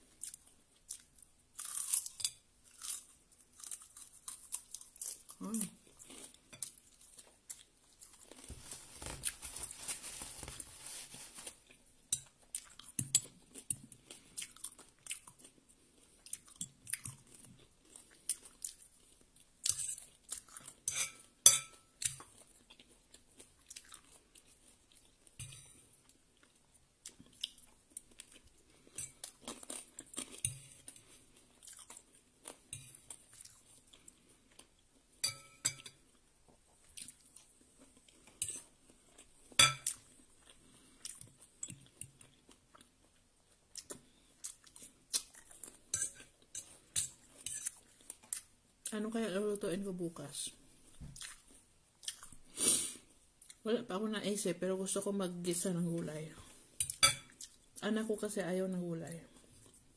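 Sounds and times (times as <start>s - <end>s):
chewing food: 0.0s - 9.6s, 11.6s - 20.9s, 21.8s - 35.1s, 35.9s - 49.0s, 50.8s - 52.6s.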